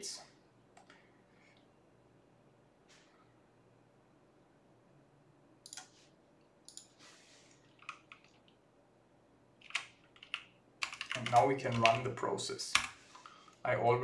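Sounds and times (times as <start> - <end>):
faint room hiss: 0.0 - 14.0
computer mouse and key clicks: 5.6 - 6.0, 6.6 - 7.0, 7.6 - 8.6, 9.6 - 12.1.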